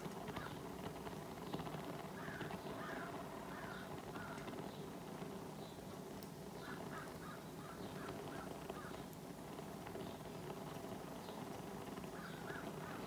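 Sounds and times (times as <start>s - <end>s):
low background noise: 0.0s - 13.0s
bird calling: 2.2s - 4.6s, 6.6s - 9.1s, 12.1s - 13.0s.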